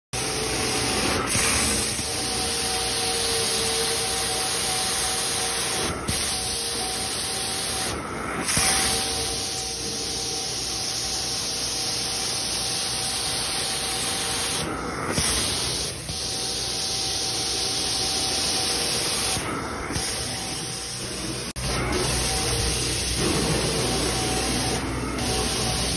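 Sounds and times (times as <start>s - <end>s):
carpet extractor suction hiss: 0.2s - 25.9s.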